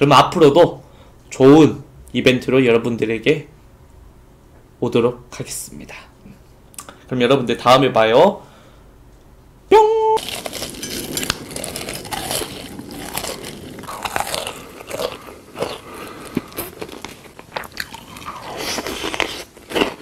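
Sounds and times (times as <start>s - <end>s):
crunchy chewing: 10.2s - 20.0s.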